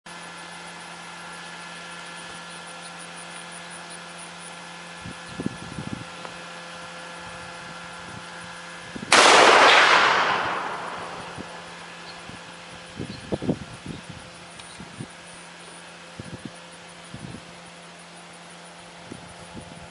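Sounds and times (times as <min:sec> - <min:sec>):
rifle shot boom: 0:09.1 - 0:11.9.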